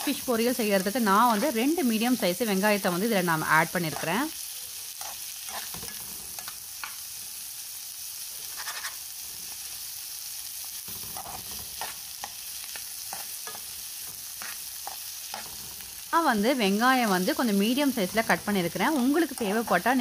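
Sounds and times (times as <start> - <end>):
onions sizzling in frying pan: 0.0 - 20.0
spoon scraping pan: 4.8 - 7.1, 8.4 - 9.7, 10.8 - 16.1.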